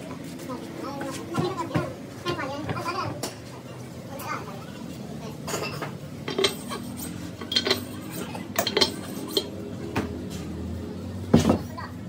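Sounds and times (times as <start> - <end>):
metal parts clinking on engine block: 5.6 - 9.6.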